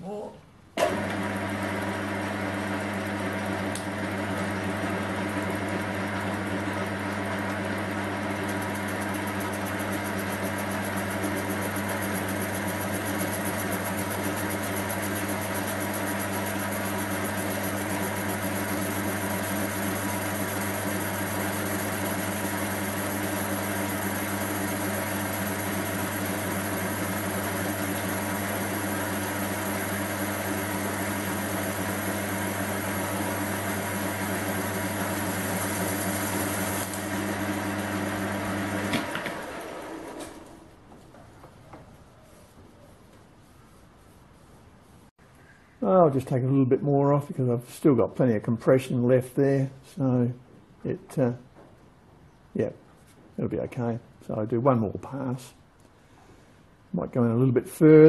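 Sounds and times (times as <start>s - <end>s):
lathe motor humming: 0.8s - 40.7s.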